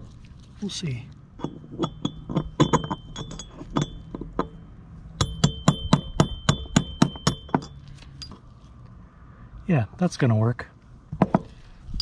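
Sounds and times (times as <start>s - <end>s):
hammer tapping a steel punch: 5.2s - 7.7s.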